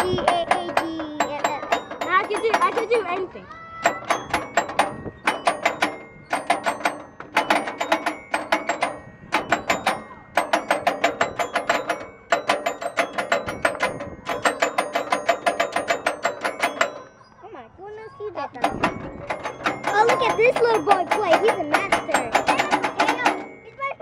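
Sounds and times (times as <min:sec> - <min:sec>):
musical panel ringing notes: 0:00.0 - 0:24.0.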